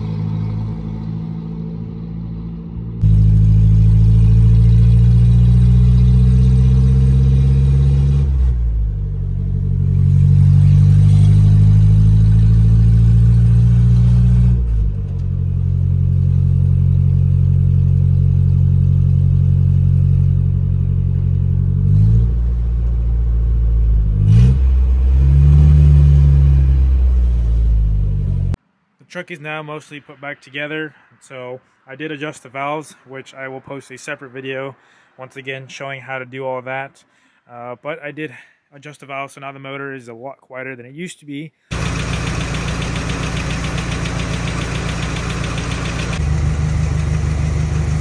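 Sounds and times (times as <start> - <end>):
pickup engine accelerating: 0.0 - 28.6, 41.7 - 48.0.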